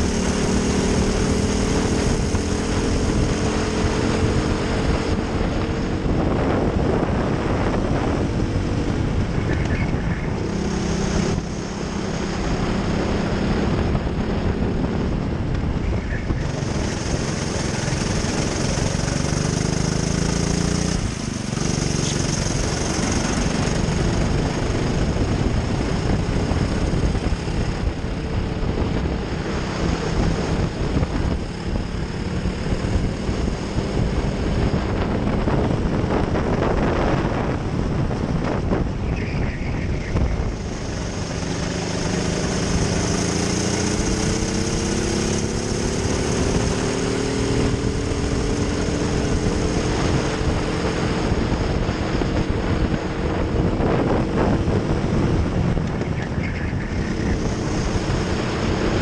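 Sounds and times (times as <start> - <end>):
kart engine revving: 0.0 - 59.0.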